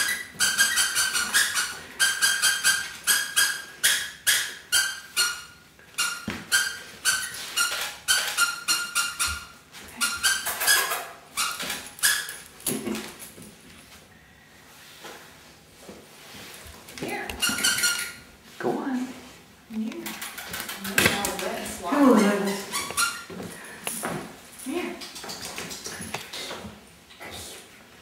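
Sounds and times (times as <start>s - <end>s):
dog claws clicking on tiles: 19.8s - 23.2s, 25.0s - 26.7s.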